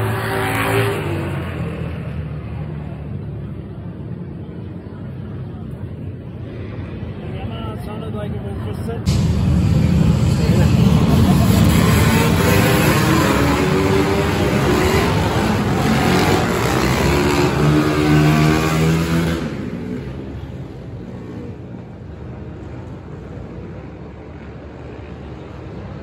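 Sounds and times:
steady background noise: 0.0s - 26.0s
dirt bike engine revving: 10.6s - 19.6s.

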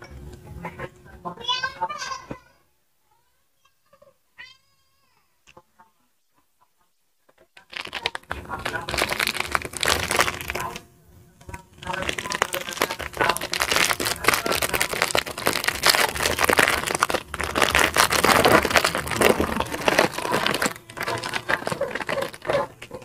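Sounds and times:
plastic bag crinkling: 7.6s - 10.8s, 11.6s - 23.0s.

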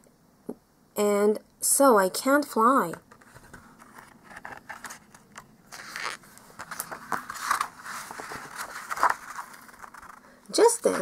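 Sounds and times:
book page turning: 3.1s - 11.0s.

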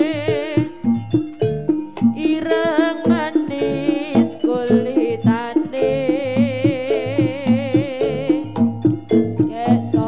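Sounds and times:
drum strokes: 0.0s - 10.0s
high wavering melody: 0.0s - 10.0s.

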